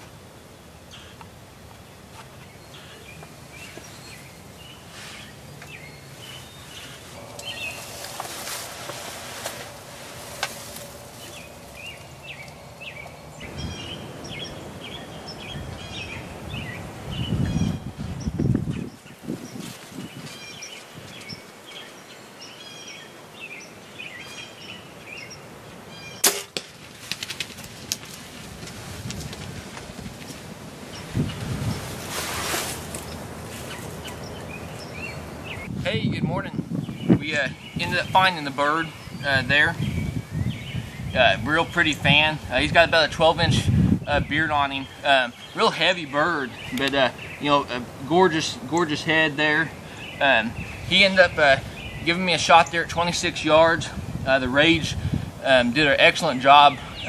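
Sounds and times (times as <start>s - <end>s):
songbirds chirping: 0.0s - 57.0s
bow shot snap: 26.2s - 26.7s.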